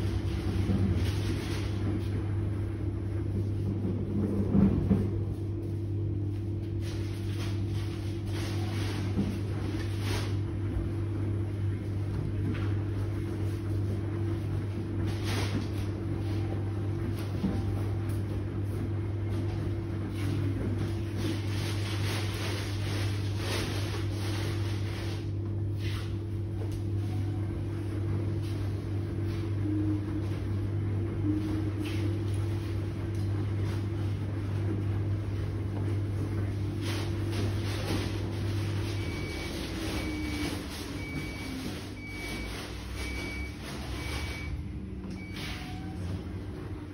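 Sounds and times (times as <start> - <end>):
washing machine motor hum: 0.0 - 46.9
water and laundry swishing: 0.0 - 46.9.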